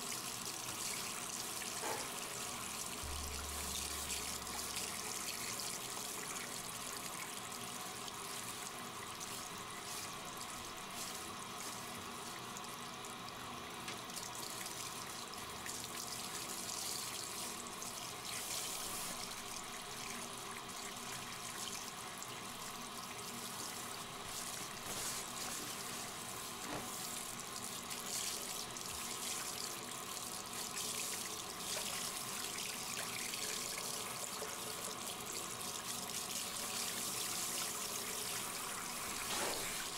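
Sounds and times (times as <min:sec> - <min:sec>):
water spraying from shower sprayer: 0:24.3 - 0:27.2, 0:38.4 - 0:39.9.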